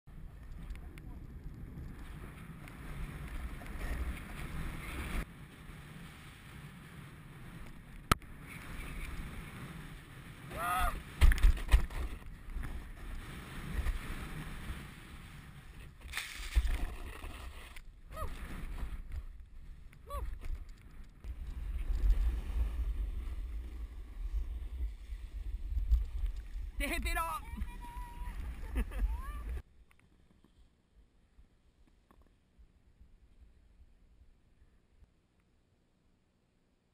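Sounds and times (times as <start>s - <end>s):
snowboard scraping over snow: 1.1s - 20.5s, 21.2s - 29.6s.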